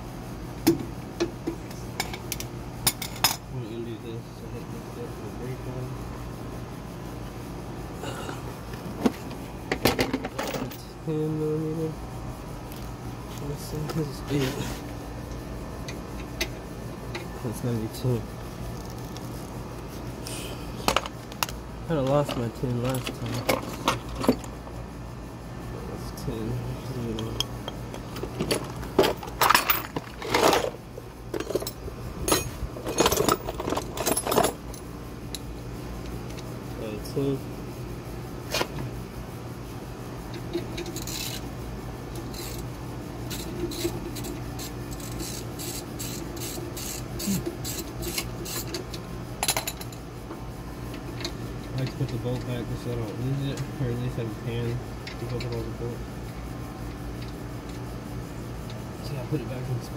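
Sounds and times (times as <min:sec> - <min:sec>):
metal tools clinking and rattling: 0:09.7 - 0:10.9, 0:20.9 - 0:24.6, 0:27.0 - 0:34.9, 0:40.4 - 0:41.5, 0:43.3 - 0:50.0.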